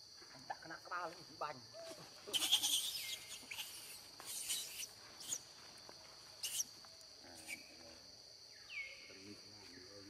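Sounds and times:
high squeaky calls: 2.3s - 5.5s, 6.4s - 6.7s
high-pitched insect drone: 2.3s - 5.8s.

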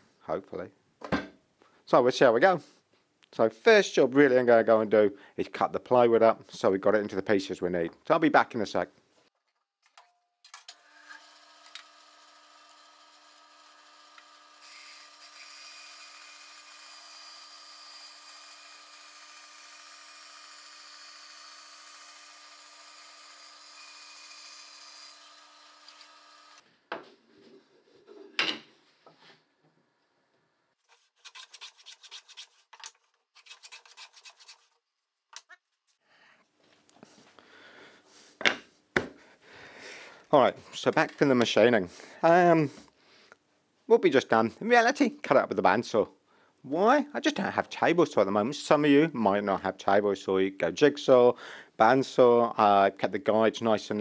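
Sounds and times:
bandsaw cutting plywood: 10.8s - 26.6s.

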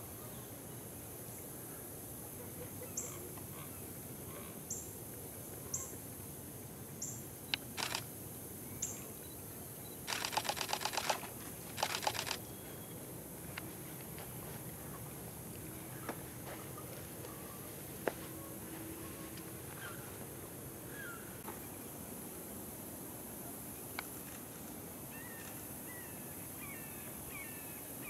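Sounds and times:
rapid camera shutter clicks: 7.5s - 8.1s, 10.1s - 12.4s.

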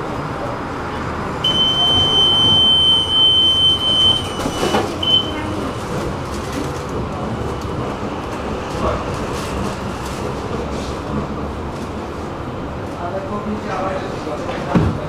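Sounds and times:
tram running noise: 0.0s - 15.0s
high electronic door warning beep: 1.4s - 5.5s.

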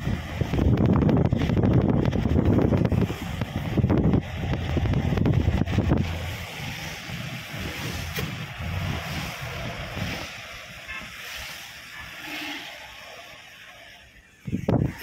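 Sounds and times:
wind buffeting microphone: 0.0s - 10.7s, 14.4s - 15.0s
tyres hissing on wet road: 0.0s - 15.0s.

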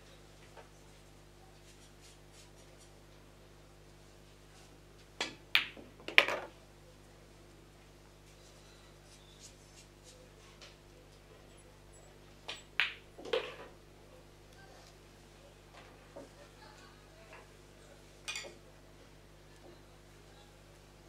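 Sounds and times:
low room hum: 0.0s - 21.0s
pool cue striking ball: 5.2s - 6.5s, 12.5s - 13.7s
billiard balls clacking: 5.2s - 6.6s, 12.4s - 13.8s.

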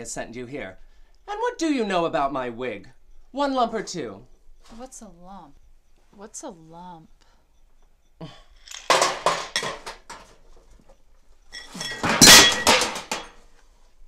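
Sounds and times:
china and cutlery clattering: 8.7s - 10.3s, 11.5s - 13.4s.

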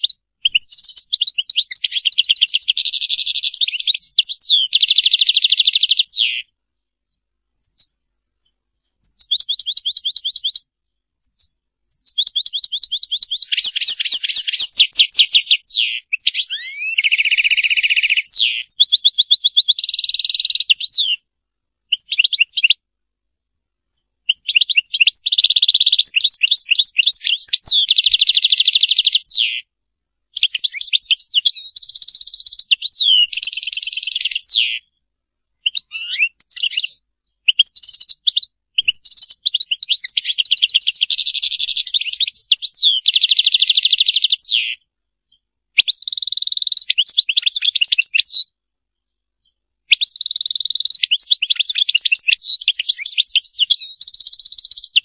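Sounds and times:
goldfinch singing: 0.0s - 6.5s, 9.0s - 10.6s, 11.2s - 21.2s, 24.3s - 29.6s, 30.4s - 35.0s, 35.6s - 44.8s, 45.9s - 48.4s, 50.0s - 55.0s.

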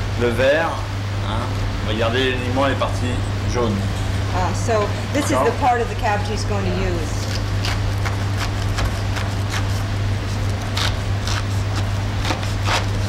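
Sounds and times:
knife cutting cabbage: 7.2s - 13.0s.

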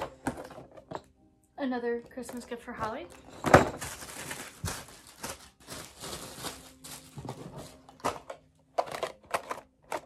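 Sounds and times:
plastic bags crinkling: 3.1s - 9.6s
packages knocking: 3.3s - 9.6s.

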